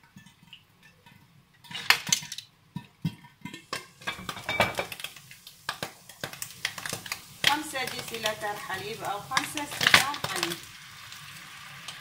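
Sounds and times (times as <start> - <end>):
cookware knocking and clinking: 3.0 - 5.0.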